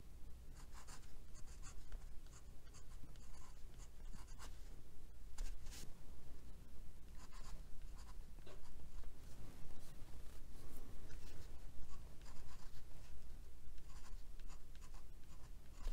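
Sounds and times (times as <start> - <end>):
pen nib scratching on paper: 11.1 - 12.9, 13.8 - 15.9.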